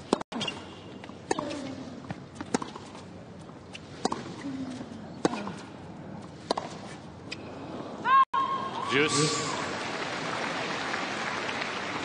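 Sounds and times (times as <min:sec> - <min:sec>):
racket hitting tennis ball: 0:00.0 - 0:07.4.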